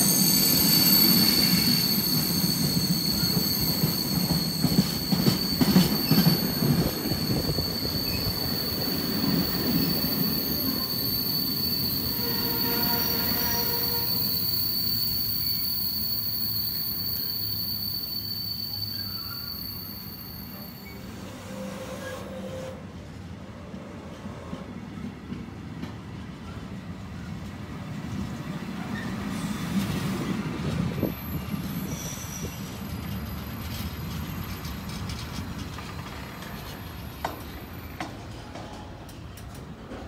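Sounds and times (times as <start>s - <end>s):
faint wheel squeals: 0.0s - 22.8s, 28.8s - 29.9s, 30.7s - 38.9s
train wheels rumbling on rails: 0.0s - 40.0s.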